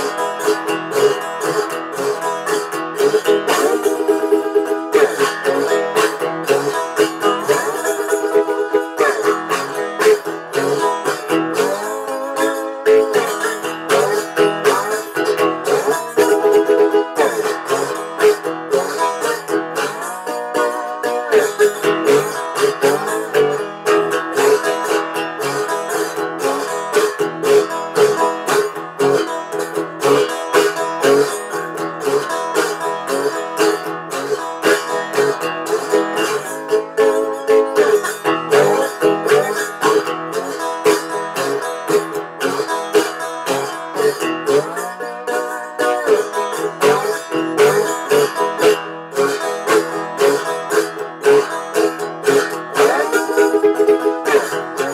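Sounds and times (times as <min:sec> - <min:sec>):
resonator guitar sliding notes: 0:00.0 - 0:54.9.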